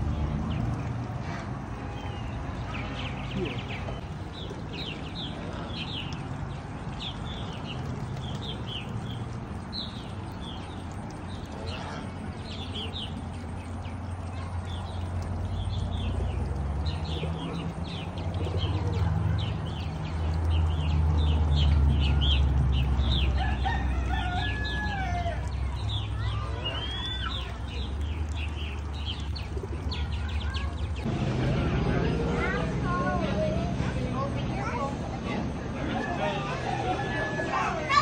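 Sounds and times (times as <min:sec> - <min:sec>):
birds chirping: 0:00.0 - 0:38.0.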